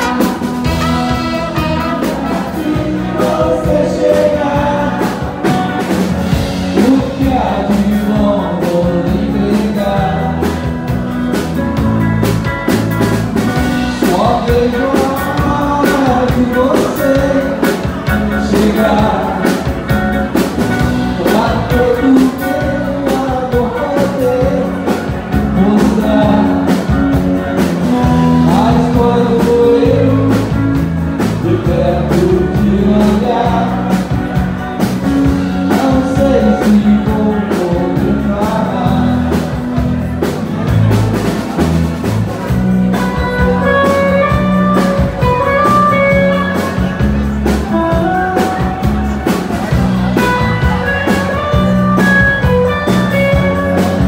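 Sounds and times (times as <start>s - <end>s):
person singing: 0.0s - 11.0s, 13.7s - 34.5s, 35.1s - 41.0s
live dance band playing: 0.0s - 54.0s
steady drum beat: 0.0s - 54.0s.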